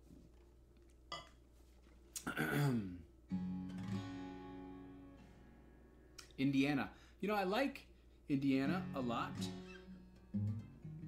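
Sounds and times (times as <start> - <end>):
acoustic guitar chord strummed: 2.4 - 6.2, 8.6 - 11.0.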